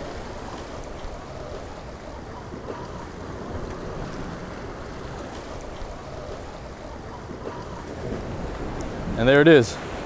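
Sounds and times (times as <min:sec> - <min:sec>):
ocean surf against rocks: 0:00.0 - 0:10.0
wind buffeting microphone: 0:00.0 - 0:10.0.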